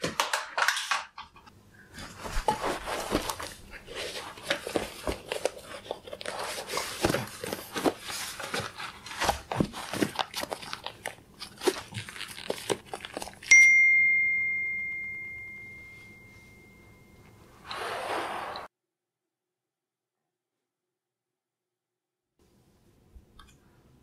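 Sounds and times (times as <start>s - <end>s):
bright bell ding: 13.5s - 17.5s.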